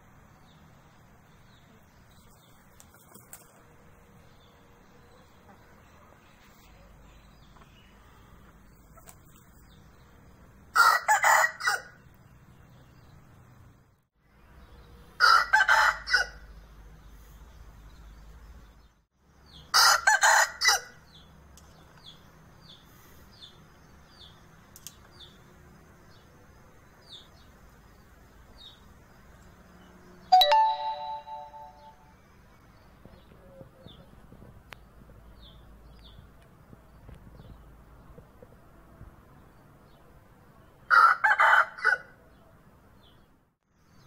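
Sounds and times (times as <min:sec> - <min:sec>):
rooster crowing hoarsely: 0:40.9 - 0:42.2.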